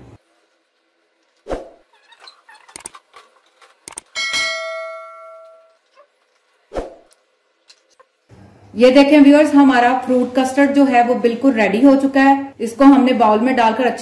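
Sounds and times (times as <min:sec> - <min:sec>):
bell chime: 0:04.2 - 0:05.8.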